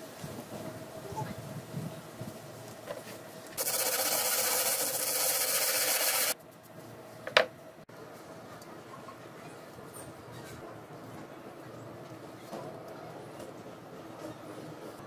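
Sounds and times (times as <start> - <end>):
concrete rubbing on sandpaper: 3.6 - 6.4.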